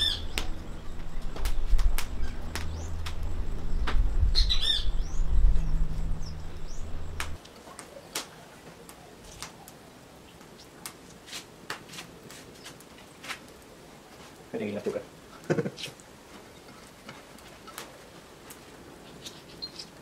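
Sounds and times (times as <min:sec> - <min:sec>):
low rumble: 0:00.0 - 0:07.4
bird chirping: 0:00.0 - 0:08.2, 0:19.0 - 0:20.0.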